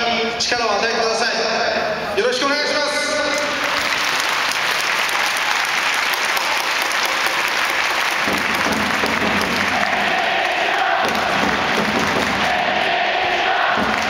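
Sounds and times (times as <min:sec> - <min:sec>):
stadium crowd applauding: 0:03.2 - 0:14.0
crowd voices: 0:06.3 - 0:14.0
crowd chanting held note: 0:09.0 - 0:14.0.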